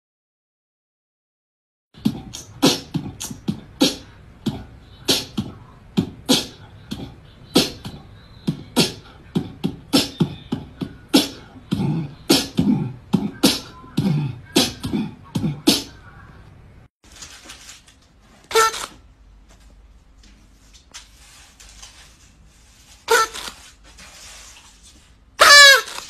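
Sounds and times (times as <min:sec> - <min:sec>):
beatboxing: 0:02.0 - 0:16.1, 0:18.5 - 0:18.9, 0:23.1 - 0:23.6.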